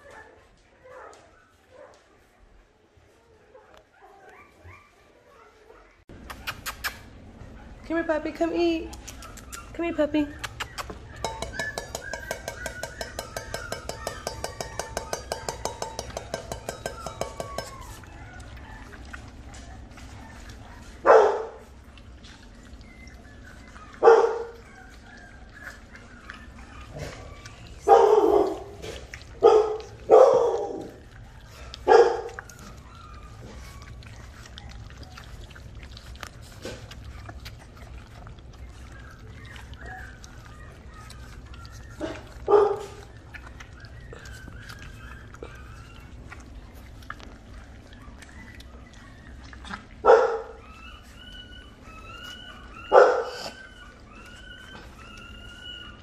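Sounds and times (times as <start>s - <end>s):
puppy barking: 10.5s - 21.7s, 23.8s - 25.7s, 26.9s - 31.0s, 31.8s - 32.8s, 39.1s - 43.4s, 48.0s - 50.9s, 52.0s - 54.9s.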